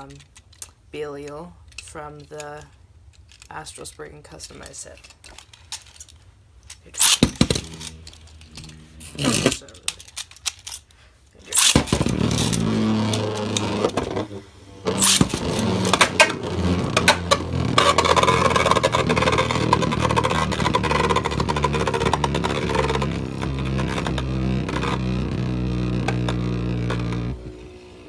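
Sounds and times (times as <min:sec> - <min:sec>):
spinning tops clacking together: 0:01.7 - 0:10.9, 0:11.5 - 0:12.7
spinning tops whirring: 0:06.8 - 0:10.3, 0:11.5 - 0:27.4
spinning tops launching: 0:06.8 - 0:10.7, 0:11.5 - 0:22.9.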